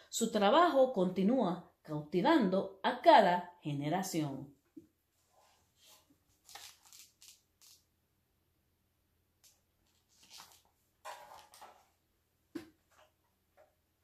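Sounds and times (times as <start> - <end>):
book pages turning: 5.4 - 7.8, 9.4 - 11.9.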